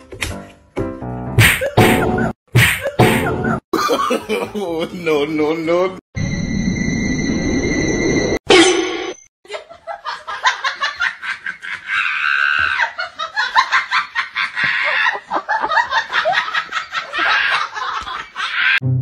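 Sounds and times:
person laughing hard: 2.9s - 5.0s, 9.5s - 18.8s.

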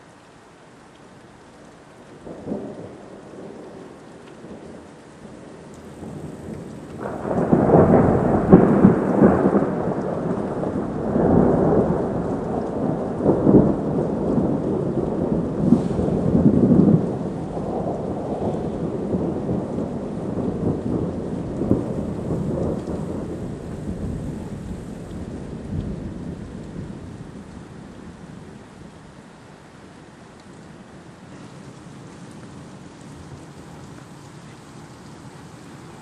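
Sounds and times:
rain falling: 0.0s - 36.0s
thunder rumbling and cracking: 2.2s - 28.9s.

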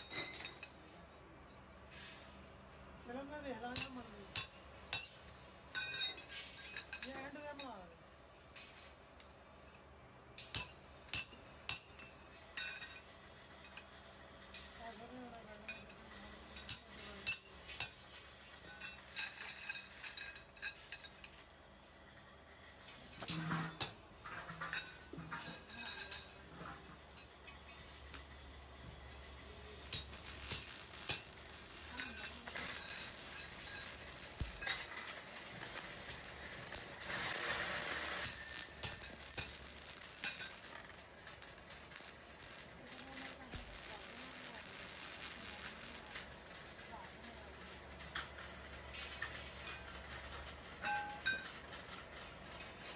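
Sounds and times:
steel tubes clinking: 3.7s - 7.8s, 10.4s - 13.9s, 15.3s - 21.8s, 23.2s - 28.4s, 29.2s - 52.0s
arc welder crackling: 24.3s - 50.3s
sharp metal clinks: 29.7s - 46.3s.

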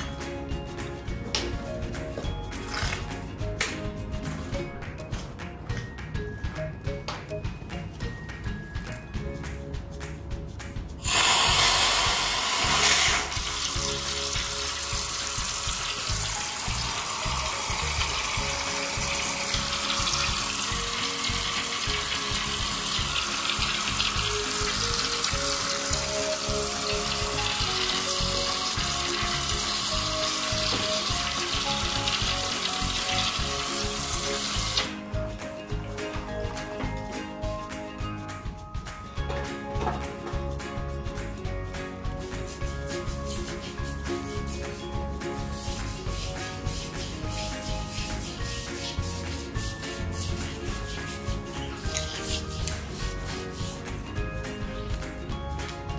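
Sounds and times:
pressure washer jet spraying: 11.0s - 34.9s.

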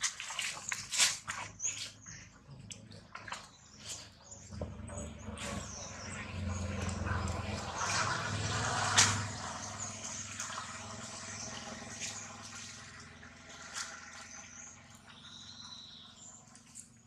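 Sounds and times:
low hum: 4.4s - 16.6s.

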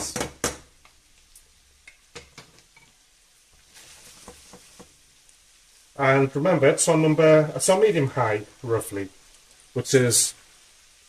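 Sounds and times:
food frying with faint sizzle: 0.0s - 11.0s
wooden spatulas scraping frying pan: 3.6s - 5.1s.

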